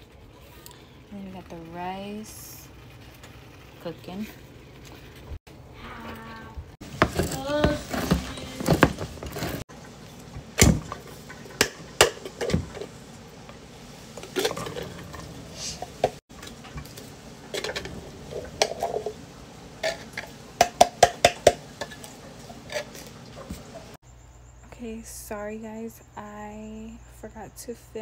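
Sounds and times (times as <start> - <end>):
can opener working: 14.2 - 19.2, 19.8 - 23.9.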